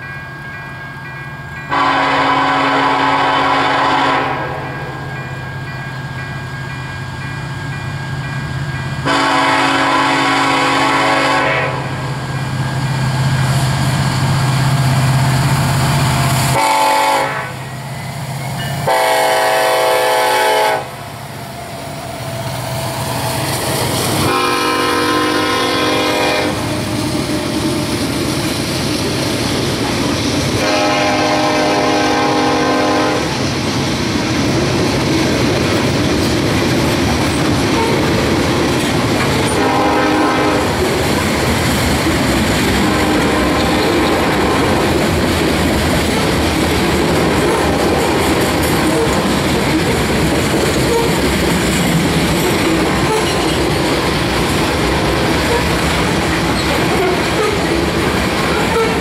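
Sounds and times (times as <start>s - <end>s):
train cars rolling past: 0.0s - 59.0s
train horn blasts: 1.7s - 5.2s, 9.0s - 12.0s, 16.5s - 17.8s, 18.8s - 21.0s, 24.2s - 27.4s, 30.6s - 33.4s, 39.4s - 40.8s, 42.7s - 45.0s, 58.6s - 59.0s.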